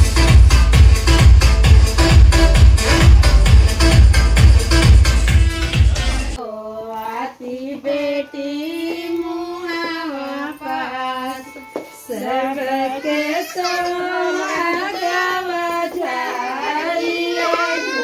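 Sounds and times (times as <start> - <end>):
woman singing high melody: 6.4 - 18.0.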